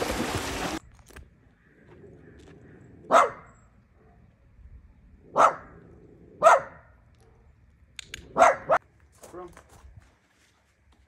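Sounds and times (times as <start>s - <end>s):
dog barking: 3.1s - 4.3s, 5.3s - 5.8s, 6.4s - 7.4s, 8.3s - 8.8s.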